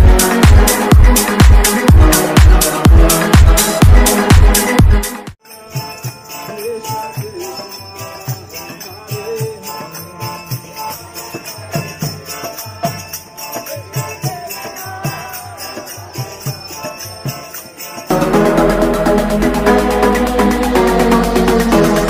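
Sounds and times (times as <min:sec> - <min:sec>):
drum beats: 0:00.0 - 0:11.0, 0:11.6 - 0:22.0
hand cymbals ringing: 0:05.4 - 0:18.4.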